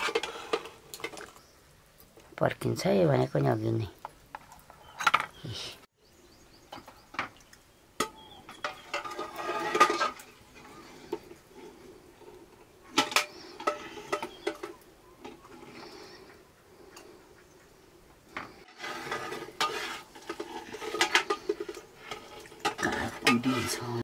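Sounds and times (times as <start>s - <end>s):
spoon clinking and scraping bowls: 18.8s - 24.0s.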